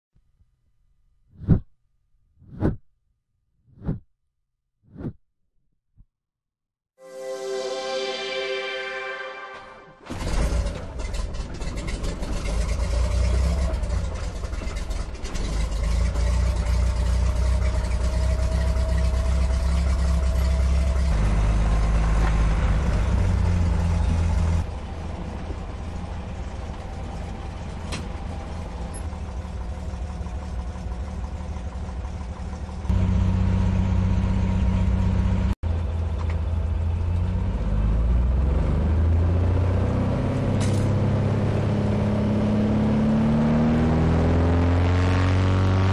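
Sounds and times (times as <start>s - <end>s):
floatplane engine and propeller: 10.0s - 45.9s.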